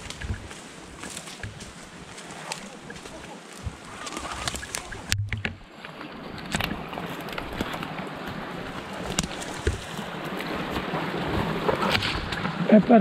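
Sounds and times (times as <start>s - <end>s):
footsteps in leaf litter: 0.0s - 5.1s, 8.3s - 10.8s
twigs snapping: 0.0s - 5.6s, 6.4s - 10.5s
branches brushing against clothing: 0.0s - 12.2s.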